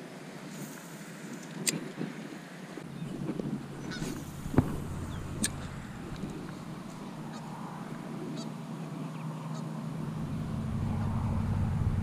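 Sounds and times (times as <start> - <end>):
low engine drone: 2.8 - 8.4, 9.8 - 12.0
bird calls: 2.8 - 9.8.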